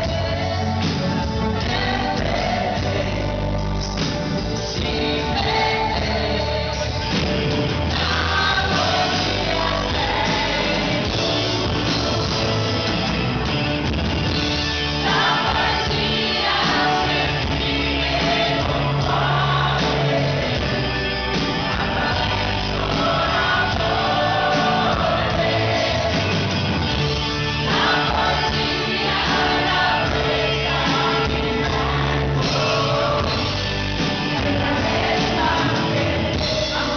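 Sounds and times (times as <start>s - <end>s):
live pop band playing: 0.0s - 36.9s
woman singing backing vocals: 7.9s - 11.2s
man singing lead: 27.6s - 36.9s.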